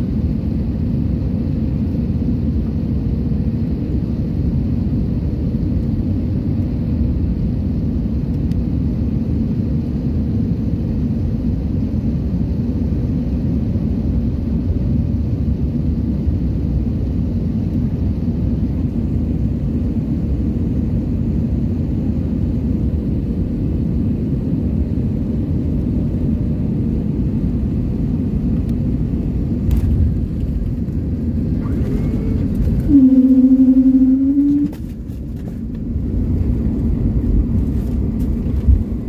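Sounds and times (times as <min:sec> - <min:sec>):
jet cabin engine rumble: 0:00.0 - 0:39.0
loud low hum: 0:27.1 - 0:39.0.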